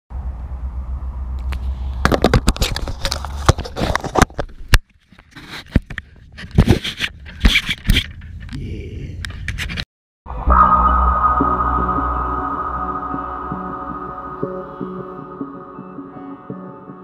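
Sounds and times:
low rumble: 0.1 - 2.1, 10.3 - 16.7
camera handling scrapes and knocks: 1.6 - 8.5, 9.3 - 9.8.

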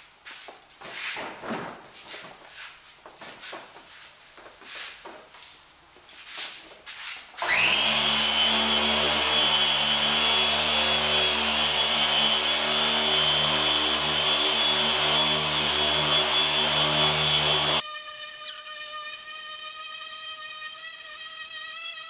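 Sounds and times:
electric polisher whining: 7.4 - 17.8.

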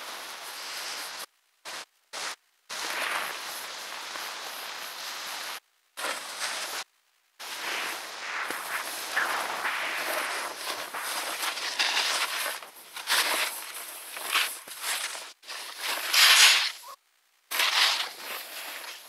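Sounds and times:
snow scraping under skis: 0.0 - 19.0.

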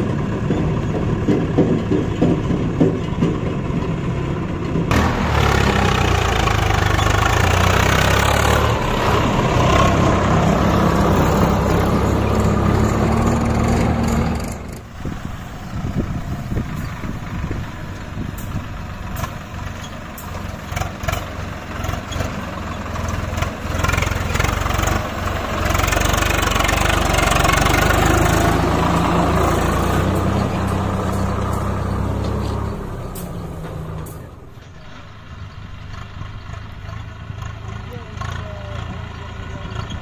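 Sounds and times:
diesel tractor engine running: 0.0 - 40.0.

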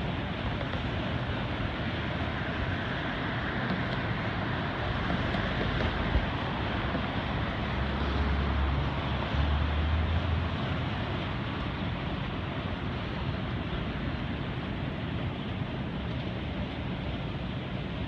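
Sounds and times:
distant city traffic: 0.0 - 18.0
wind: 0.0 - 18.0.

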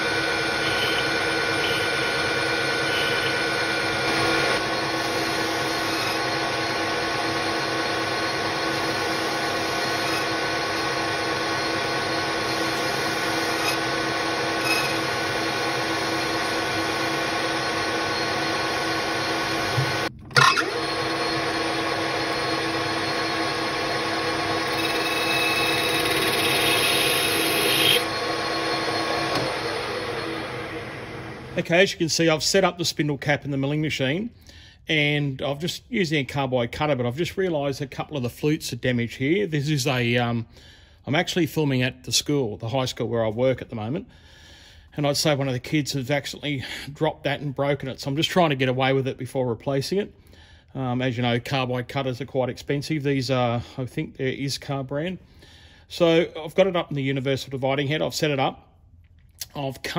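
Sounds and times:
lathe humming and whining: 0.0 - 31.6.

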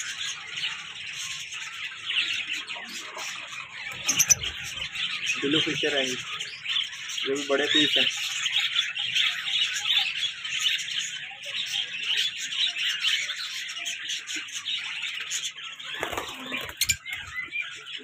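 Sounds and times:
small parrots chirping: 0.0 - 18.0
wings flapping: 15.9 - 16.9.

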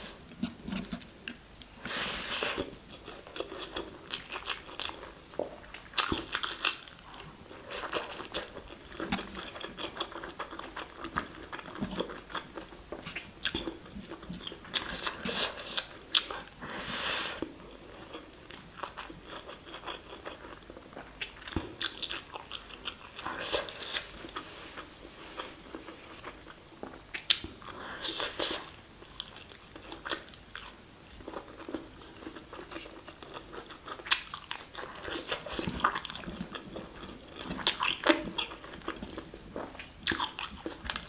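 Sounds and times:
breathy hiss: 1.8 - 2.7, 16.6 - 17.5.

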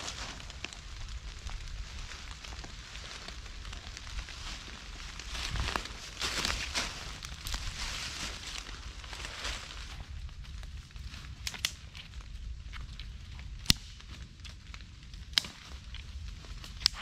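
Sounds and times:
rustling in dry leaves: 0.0 - 17.0
dry sticks snapping: 11.2 - 17.0.

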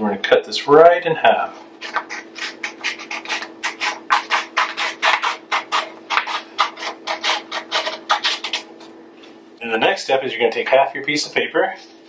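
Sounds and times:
scissors cutting paper: 1.8 - 8.9.

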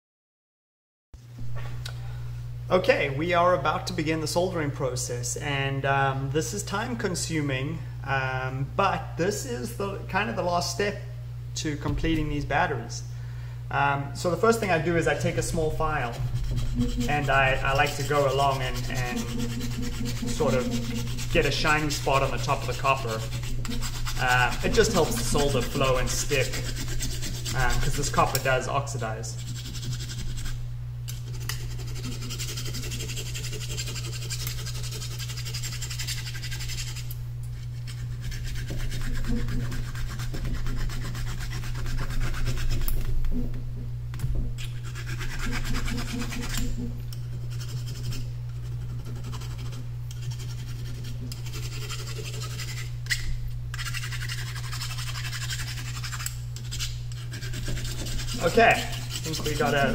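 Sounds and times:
steady low hum: 1.2 - 59.9
hand file scraping metal: 15.0 - 43.6, 44.6 - 59.9.

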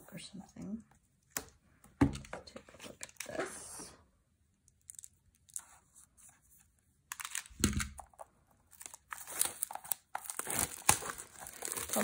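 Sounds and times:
plastic wrapping crinkling and tearing: 7.1 - 12.0.

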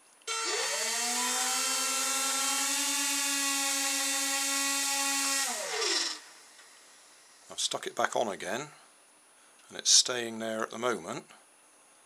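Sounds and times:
small electric motors whining: 0.3 - 6.8.

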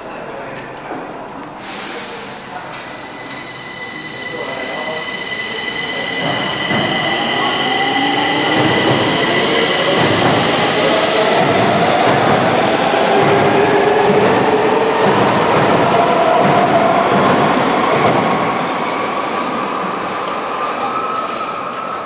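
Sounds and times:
metro train running: 0.0 - 22.0
wheels squealing on rails: 0.0 - 22.0.

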